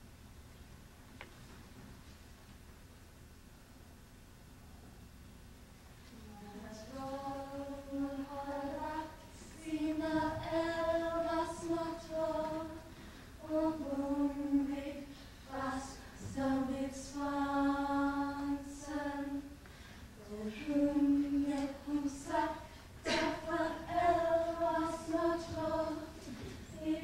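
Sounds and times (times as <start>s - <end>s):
woman singing a cappella: 6.1s - 12.8s, 13.4s - 19.6s, 20.2s - 27.0s.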